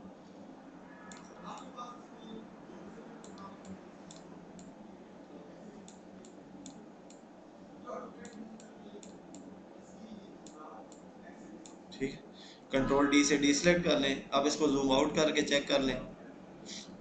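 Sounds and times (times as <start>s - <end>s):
steady low hiss: 0.0s - 17.0s
computer mouse clicking: 1.1s - 1.7s, 3.2s - 4.7s, 8.2s - 9.5s.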